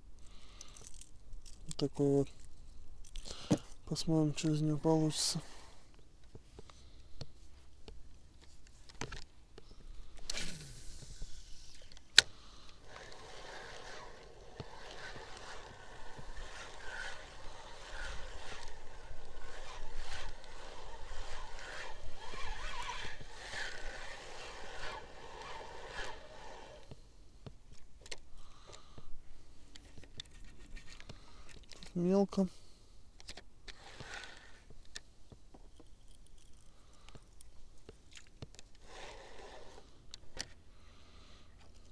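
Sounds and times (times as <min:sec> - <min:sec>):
fishing reel gears whirring: 0:10.2 - 0:26.9, 0:33.7 - 0:34.7, 0:38.8 - 0:39.9.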